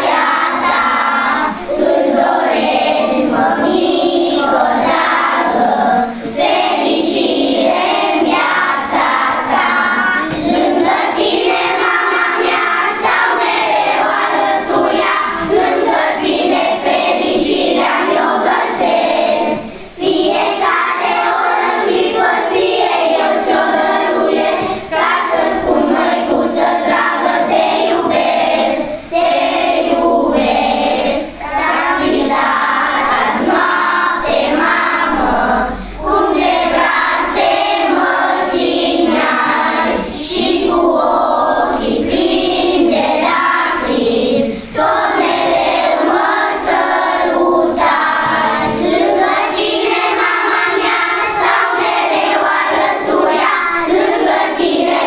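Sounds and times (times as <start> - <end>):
young children singing: 0.0 - 55.0.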